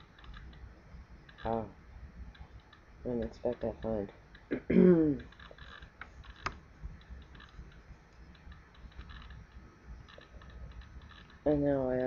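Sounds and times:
keyboard typing: 0.0 - 0.6, 5.2 - 11.5.

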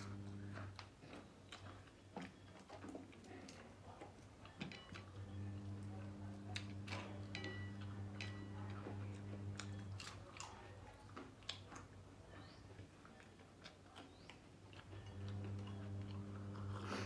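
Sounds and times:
low steady hum: 0.0 - 2.0, 2.6 - 11.4, 14.0 - 17.0
crunching and chewing: 0.0 - 17.0.

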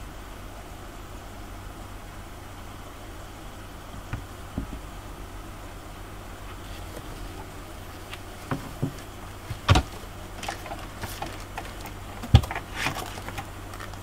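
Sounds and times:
steady low hum: 0.0 - 14.0
loud thumps: 4.0 - 5.0, 8.2 - 13.4
light clicks and knocks: 6.5 - 14.0.

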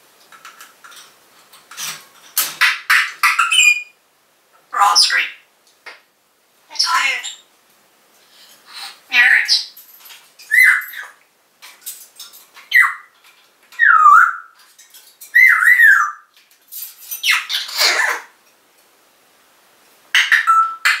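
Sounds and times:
parrot squawk: 4.7 - 5.4, 17.2 - 18.3
parrot whistling calls: 10.5 - 11.2, 13.8 - 14.6, 15.3 - 16.2.

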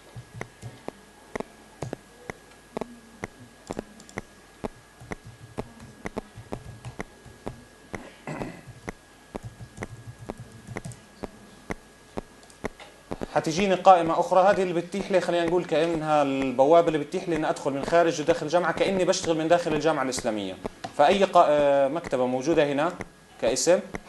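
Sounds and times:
keyboard keys typing: 0.0 - 8.1, 8.7 - 11.4
faint high whine: 0.0 - 24.0.

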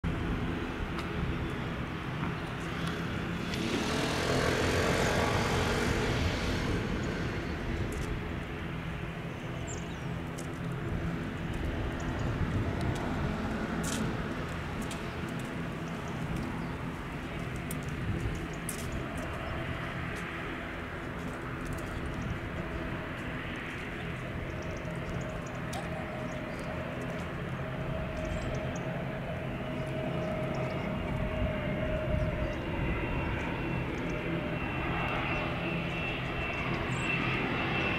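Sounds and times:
traffic noise: 0.0 - 37.9
vehicle passing by: 2.7 - 8.1.

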